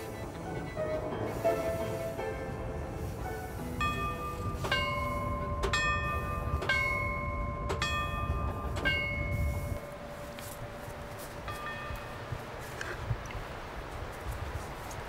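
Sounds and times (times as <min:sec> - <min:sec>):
signal bell ringing: 0:03.8 - 0:12.3.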